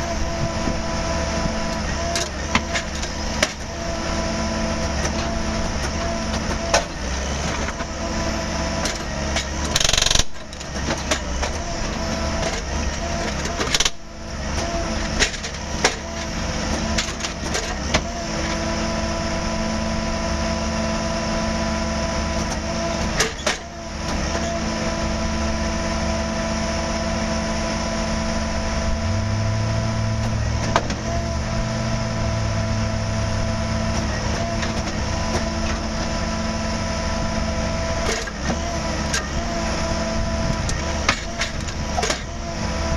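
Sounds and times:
machinery engine hum: 0:00.0 - 0:42.9
lower hum: 0:27.5 - 0:34.0.

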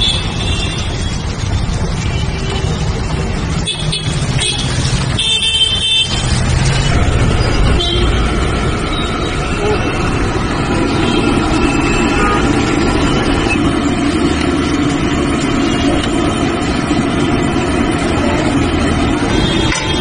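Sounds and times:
traffic running: 0:00.0 - 0:20.0
voices: 0:09.2 - 0:13.8.

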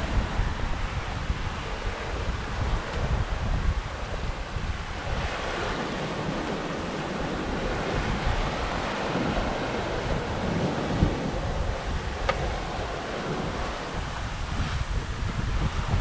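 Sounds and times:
water rushing along a hull: 0:00.0 - 0:16.0
wind buffeting the microphone: 0:00.0 - 0:16.0.

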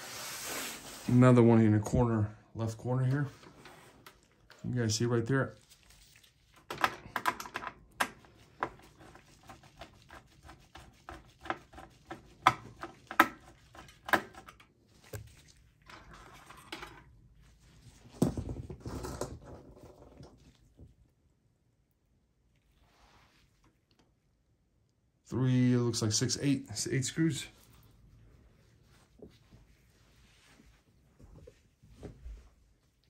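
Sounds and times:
rustling handling noise: 0:02.9 - 0:10.2.

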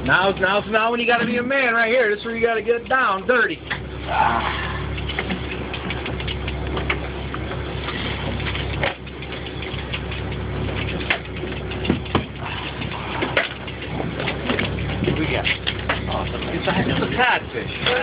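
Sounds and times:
boat engine idling: 0:00.0 - 0:18.0
tackle clicks and knocks: 0:04.9 - 0:17.2.

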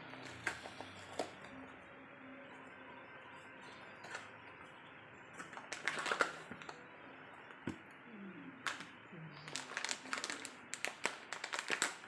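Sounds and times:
foil crinkling and tapping: 0:09.5 - 0:12.0.

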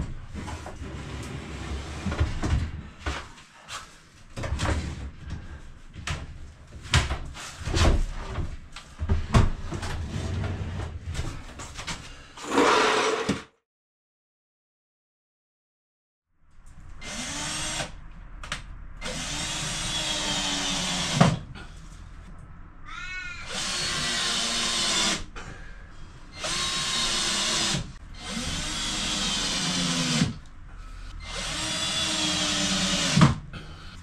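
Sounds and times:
cordless drill driving screws: 0:26.4 - 0:30.3, 0:31.2 - 0:33.2.

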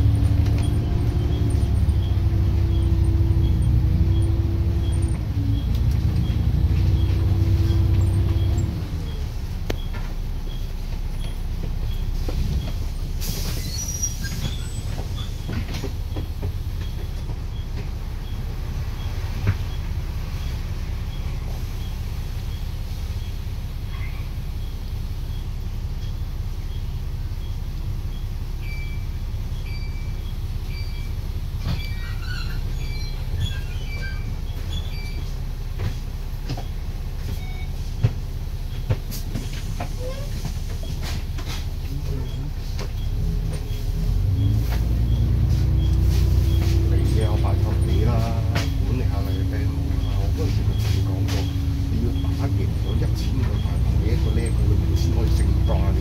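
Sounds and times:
bus engine rumble: 0:00.0 - 0:56.0
bodywork rattles and knocks: 0:14.2 - 0:18.1.

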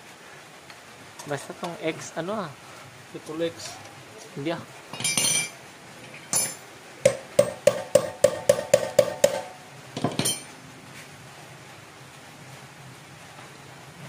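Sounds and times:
metal parts clattering: 0:04.9 - 0:06.6
hammer striking metal: 0:06.3 - 0:10.5.

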